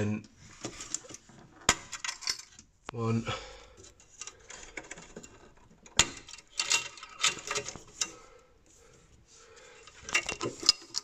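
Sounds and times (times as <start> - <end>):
clicks and metallic rattles of screws: 0.9 - 2.7, 3.8 - 8.2, 9.8 - 11.0.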